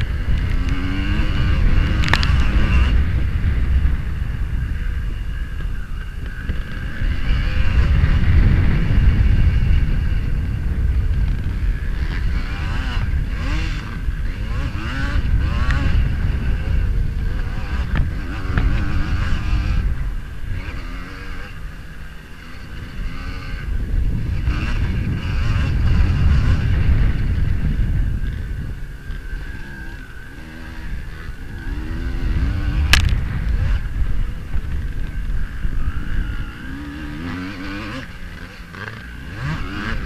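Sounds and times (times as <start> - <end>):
motocross bike engine revving: 0.0 - 40.0.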